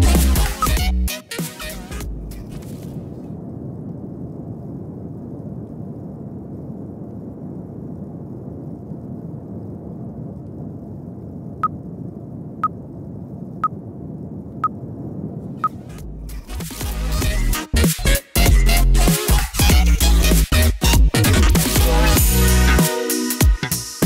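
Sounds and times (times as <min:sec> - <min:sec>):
muffled low rumble: 0:02.0 - 0:17.5.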